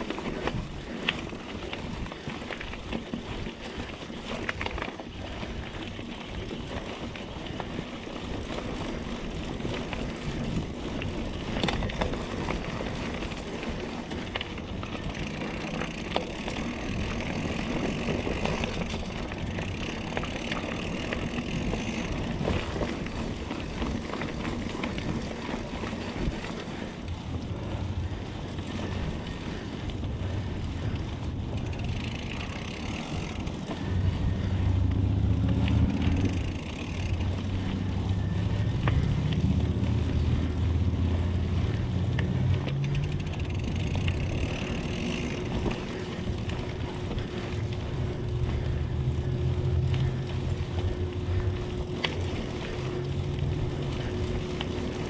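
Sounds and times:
bike rattling: 0:00.0 - 0:55.0
bike tyres rolling on dirt: 0:00.0 - 0:55.0
low rumble: 0:16.8 - 0:55.0.

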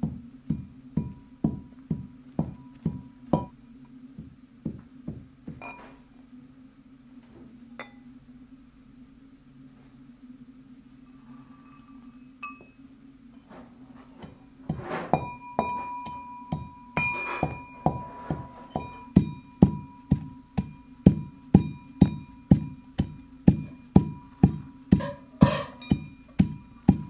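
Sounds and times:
brass pestle pounding: 0:00.0 - 0:03.6, 0:14.7 - 0:27.0.

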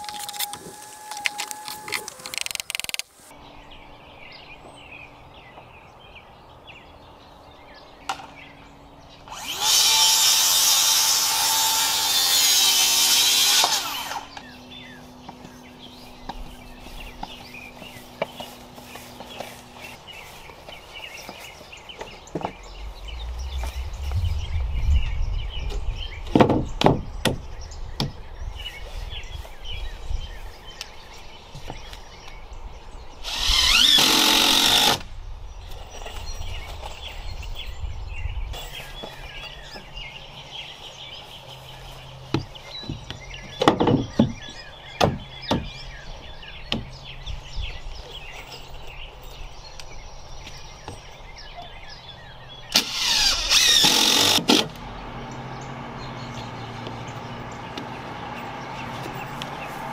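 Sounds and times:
power tool running: 0:00.0 - 0:02.9, 0:09.2 - 0:14.6, 0:33.2 - 0:35.1, 0:52.8 - 0:59.9
birds chirping: 0:00.0 - 0:59.9
knocks on wooden stair treads: 0:42.3 - 0:45.8.

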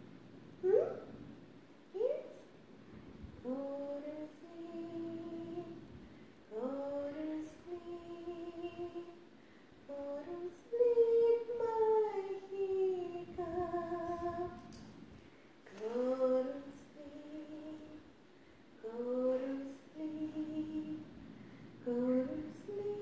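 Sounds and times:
woman singing a lullaby: 0:03.4 - 0:05.9, 0:06.5 - 0:14.8, 0:15.7 - 0:18.1, 0:18.8 - 0:21.2, 0:21.8 - 0:23.0.

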